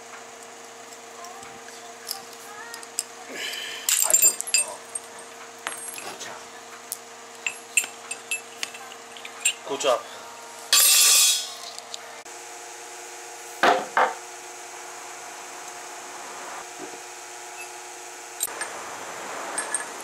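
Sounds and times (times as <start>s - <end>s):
steel balls clinking: 3.8s - 6.3s, 7.3s - 9.7s, 10.7s - 11.9s, 19.5s - 20.0s.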